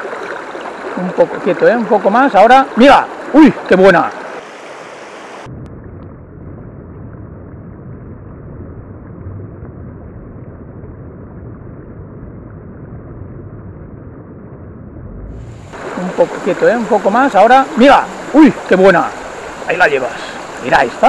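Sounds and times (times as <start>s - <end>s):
river water rushing: 0.0s - 5.5s, 15.4s - 21.0s.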